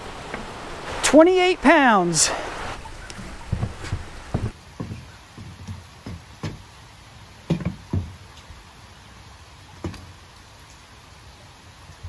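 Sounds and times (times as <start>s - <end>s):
fish handling knocks and thumps: 3.2s - 6.6s.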